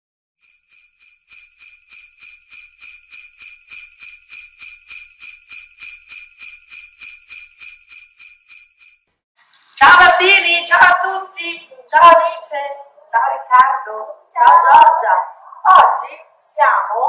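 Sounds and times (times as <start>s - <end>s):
jingle bells shaken: 0.4s - 9.0s.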